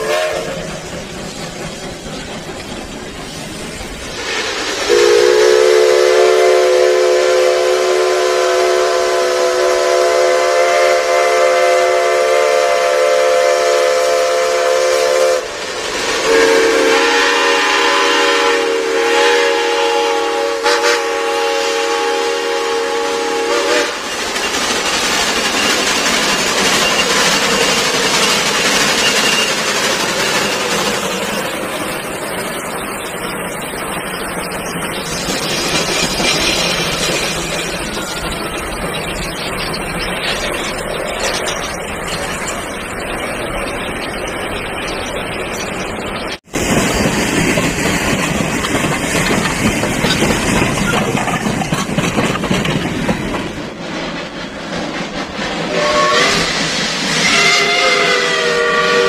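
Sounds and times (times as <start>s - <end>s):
steam whistle blasts: 0.0s - 0.7s, 4.9s - 15.6s, 16.2s - 24.1s, 55.7s - 56.6s, 57.2s - 59.0s
locomotive running: 0.0s - 59.0s
steam hissing: 0.0s - 59.0s.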